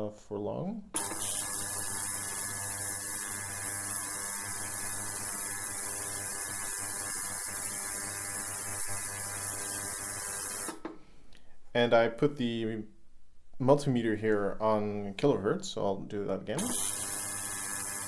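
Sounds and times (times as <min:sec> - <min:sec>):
buzzing hum: 0:01.0 - 0:10.8, 0:16.6 - 0:18.0.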